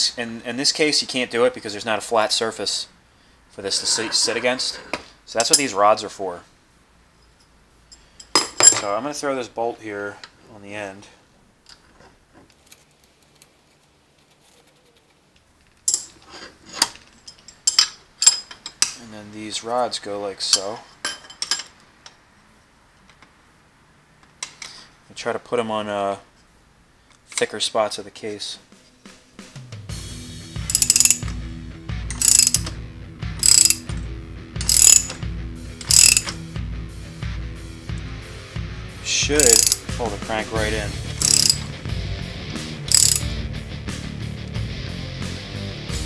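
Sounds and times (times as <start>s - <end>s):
metal rods clinking: 15.8s - 19.0s, 20.4s - 21.8s, 30.7s - 31.4s, 32.1s - 32.8s, 33.4s - 34.0s, 34.6s - 35.2s, 35.8s - 36.4s, 39.4s - 40.0s, 40.6s - 41.8s, 42.9s - 43.3s
ratchet wrench clicking: 30.7s - 31.4s, 32.1s - 32.8s, 33.4s - 34.0s, 34.6s - 35.2s, 35.8s - 36.4s, 39.4s - 40.0s, 41.1s - 41.7s, 42.9s - 43.3s.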